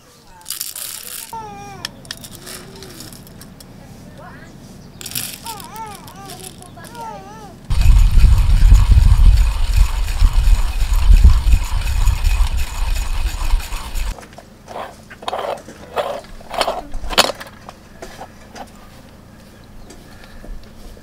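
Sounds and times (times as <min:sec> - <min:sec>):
coffee grinder grinding beans: 0:05.0 - 0:07.0, 0:07.7 - 0:14.2.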